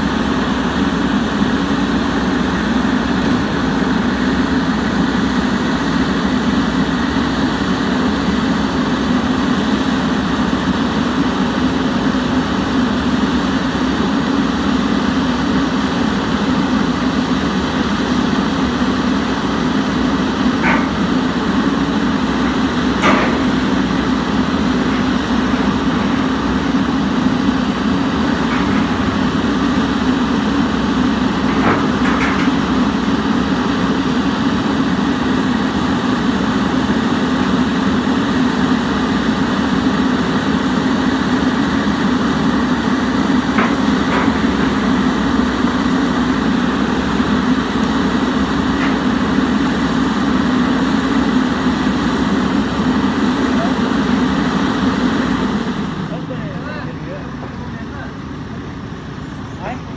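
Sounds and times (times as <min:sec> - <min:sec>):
excavator diesel engine running: 0:00.0 - 0:59.9
sharp knocks: 0:20.6 - 0:21.2, 0:23.0 - 0:23.6.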